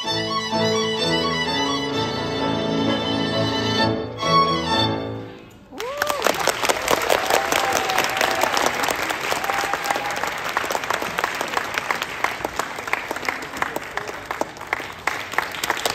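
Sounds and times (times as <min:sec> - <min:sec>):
audience cheering: 0:05.7 - 0:14.2
audience applauding: 0:05.7 - 0:15.9.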